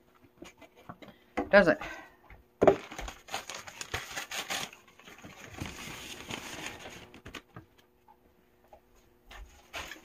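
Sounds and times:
items clicking and knocking: 2.3 - 4.1.

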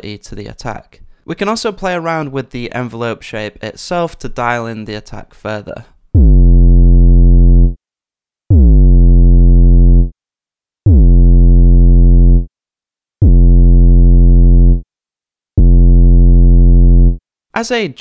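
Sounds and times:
synth bass note with pitch drop: 6.2 - 7.8, 8.5 - 10.1, 10.9 - 12.5, 13.2 - 14.8, 15.6 - 17.2.

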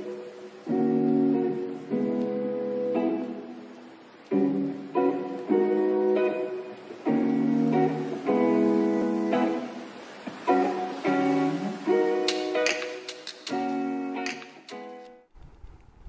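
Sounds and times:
strummed acoustic guitar: 4.5 - 15.0.

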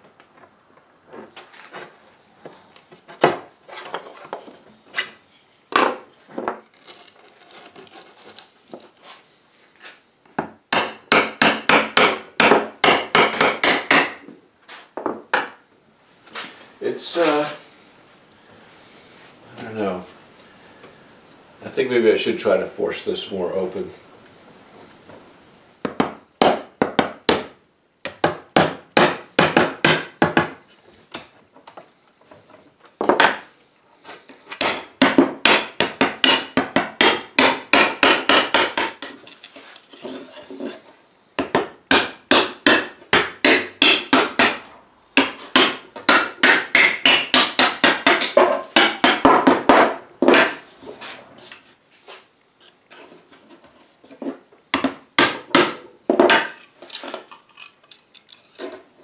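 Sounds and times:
hammer tapping wooden wedges: 10.4 - 14.3, 25.8 - 31.8, 34.3 - 39.4, 41.4 - 50.7, 54.2 - 56.7.

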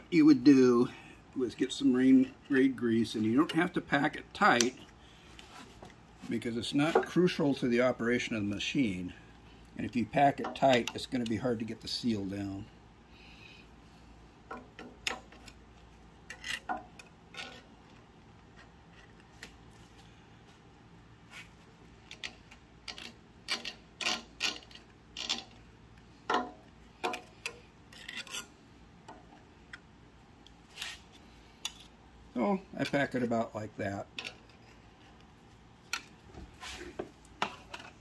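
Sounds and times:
putty knife scraping grease: 16.3 - 16.8, 27.0 - 28.5.

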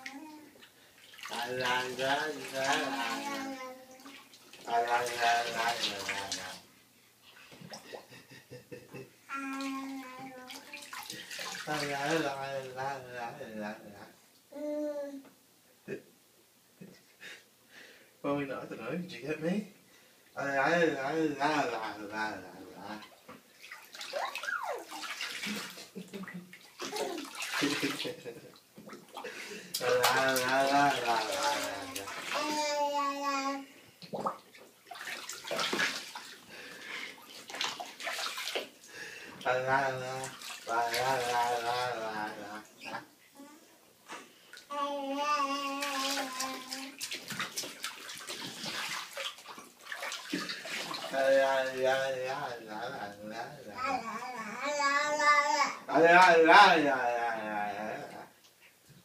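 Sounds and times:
bathwater splashing and sloshing: 0.0 - 8.4, 9.5 - 12.8, 21.6 - 32.8, 33.9 - 43.1, 45.5 - 53.3
baby squealing: 24.2 - 25.0.

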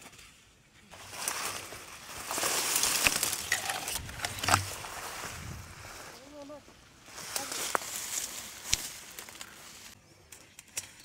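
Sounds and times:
dry grass rustling and swishing: 0.0 - 10.0
stalks snapping: 1.2 - 4.8, 7.3 - 9.6.

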